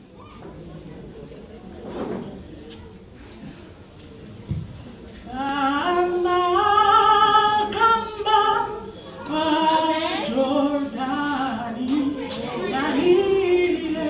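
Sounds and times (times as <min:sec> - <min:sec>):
woman singing into a microphone: 0:05.3 - 0:14.0.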